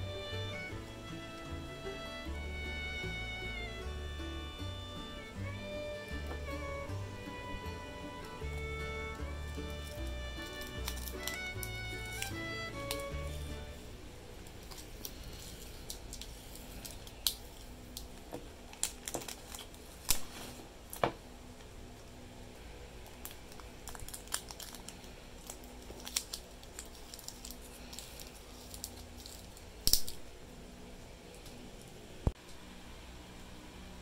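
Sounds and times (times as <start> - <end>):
plastic wrap crinkling: 8.5 - 21.2, 22.9 - 30.3.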